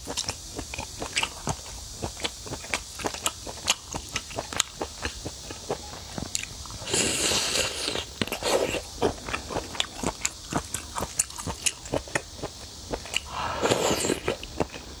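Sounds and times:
biting and chewing clicks: 0:08.0 - 0:14.8.

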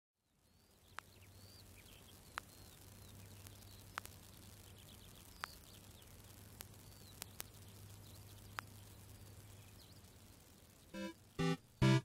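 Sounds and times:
faint birds chirping: 0:00.2 - 0:12.0.

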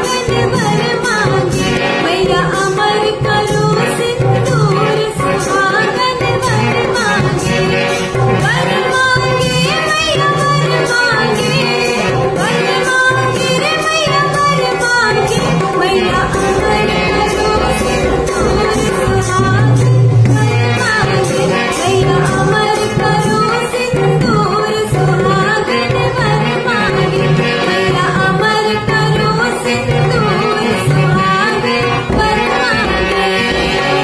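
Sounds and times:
hand drum: 0:00.0 - 0:34.0
woman singing folk song: 0:08.4 - 0:21.2.

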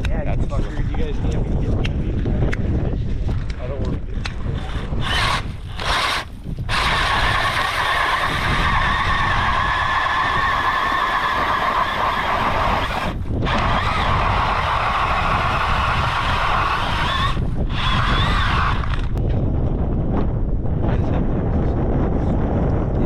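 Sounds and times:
cordless drill whining: 0:04.6 - 0:19.2.

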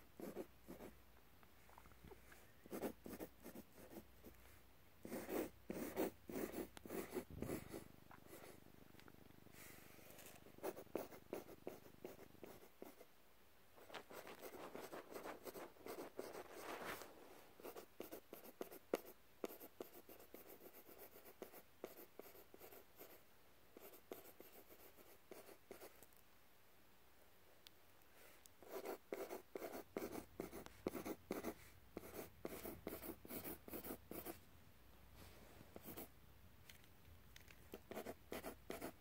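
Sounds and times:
pencil scratching on paper: 0:00.2 - 0:00.9, 0:02.7 - 0:04.4, 0:05.0 - 0:08.6, 0:10.0 - 0:13.1, 0:13.8 - 0:23.2, 0:23.8 - 0:26.0, 0:28.6 - 0:34.4, 0:35.8 - 0:36.1, 0:37.7 - 0:39.0.

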